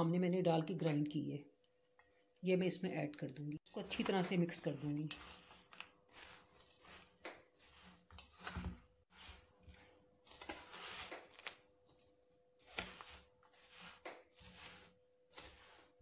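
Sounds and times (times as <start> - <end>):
spatula scraping dry mix: 3.7 - 16.0.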